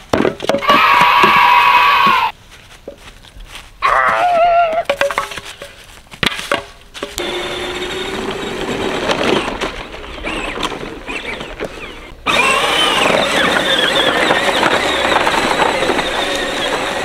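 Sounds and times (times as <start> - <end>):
plastic wheels crunching leaves: 0.0 - 17.0
faint motor hum: 7.2 - 17.0.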